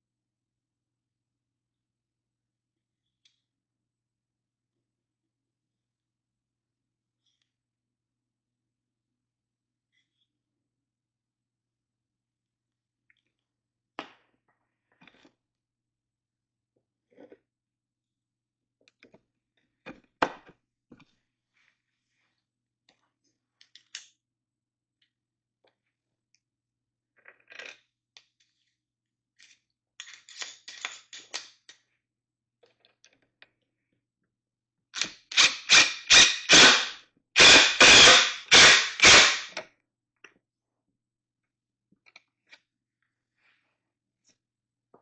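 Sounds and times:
cordless power driver bursts: 0:35.4 - 0:39.5.

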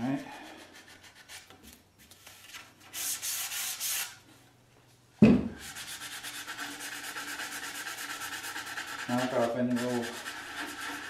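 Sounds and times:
sandpaper rubbing on wood: 0:02.9 - 0:04.2, 0:05.6 - 0:11.0
door knocked down on bench: 0:05.2 - 0:05.5.

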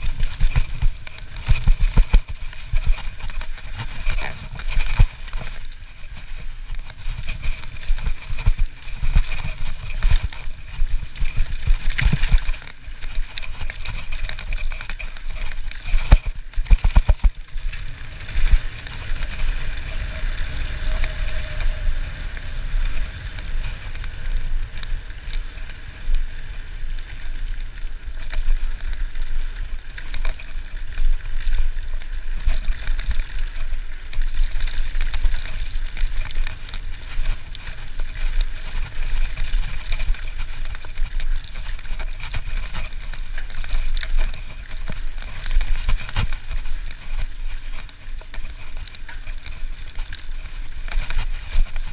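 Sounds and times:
bike knocking and rattling: 0:00.0 - 0:51.9
bike tyres rolling over gravel: 0:00.0 - 0:51.9.

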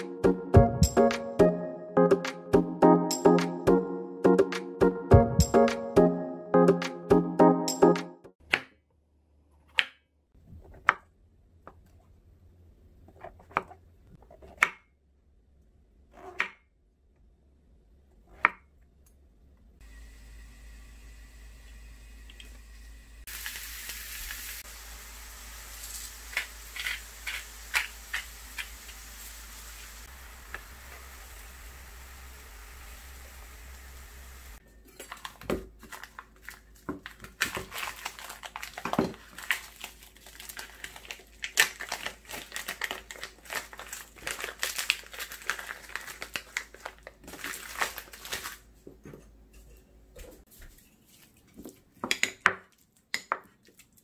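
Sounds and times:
oil sizzling in a frying pan: 0:19.8 - 0:34.6.

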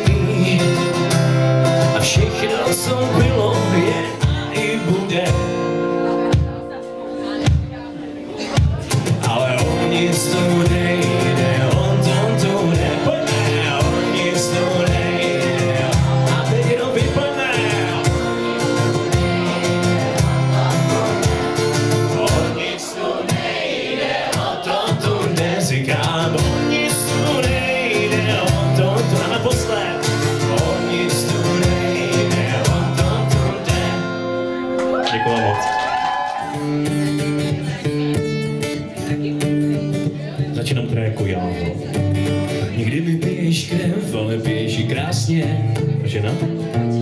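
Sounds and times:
acoustic guitar playing: 0:00.0 - 0:47.0
person singing: 0:01.9 - 0:06.4, 0:08.4 - 0:23.5, 0:24.4 - 0:35.0.

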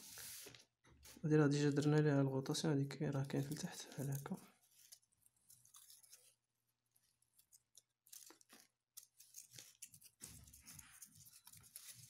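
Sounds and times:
small clicks and rustles: 0:03.2 - 0:12.0.

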